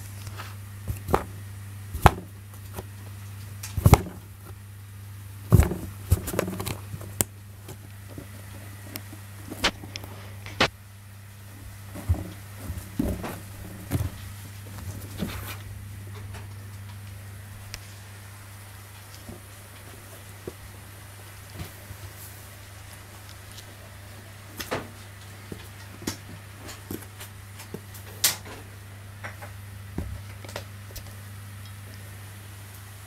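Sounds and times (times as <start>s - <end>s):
cats pawing at cardboard box: 0.0s - 1.4s, 2.0s - 4.6s, 5.4s - 10.7s, 11.5s - 15.7s
steady low hum: 0.0s - 33.0s.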